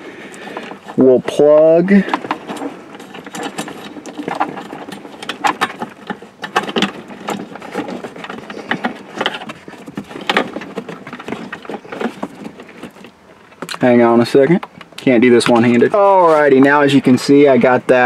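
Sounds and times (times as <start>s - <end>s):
plastic plugs and wires clicking: 14.5s - 16.0s.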